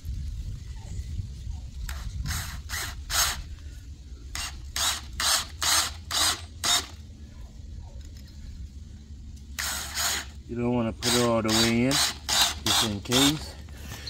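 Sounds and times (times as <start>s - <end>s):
cordless drill driving screw into wood: 1.9s - 3.5s, 4.3s - 7.0s, 9.6s - 10.4s, 11.0s - 13.5s.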